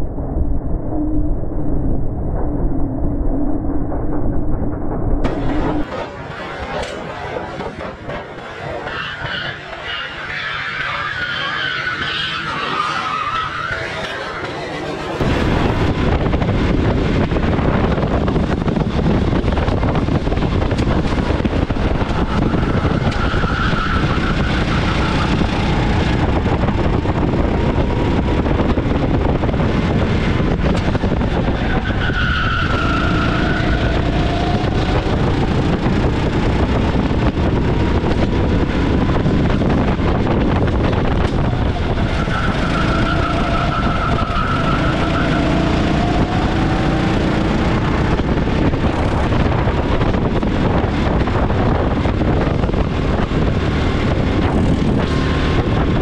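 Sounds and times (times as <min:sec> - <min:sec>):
go-kart engine running hard: 0:13.6 - 0:56.0.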